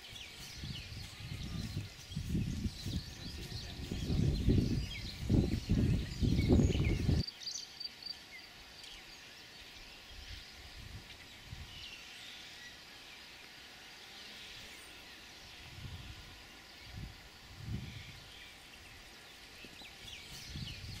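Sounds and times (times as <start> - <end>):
wind buffeting microphone: 0.0 - 7.2, 15.5 - 21.0
faint high bird chirps: 0.0 - 12.8.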